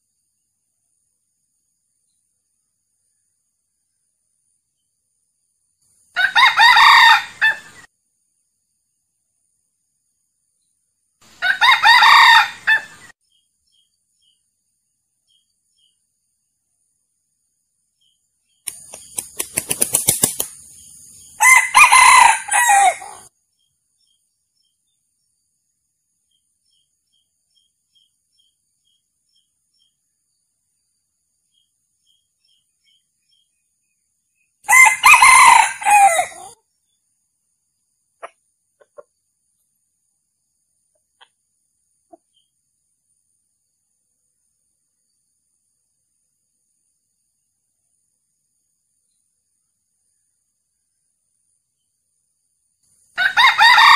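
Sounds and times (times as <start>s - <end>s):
rooster crowing: 6.2s - 7.8s, 11.4s - 13.0s, 21.4s - 23.3s, 34.7s - 36.6s, 53.2s - 53.9s.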